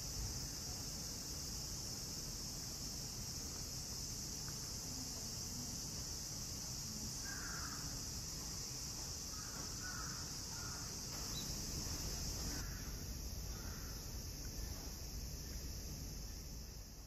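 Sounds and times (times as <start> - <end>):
cicadas chorus: 0.0 - 17.0
faint crow caws: 7.2 - 7.9, 9.3 - 11.3, 12.5 - 14.1.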